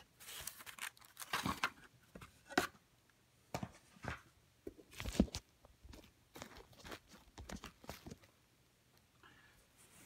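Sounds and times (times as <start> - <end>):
paper rustling: 0.2 - 1.8.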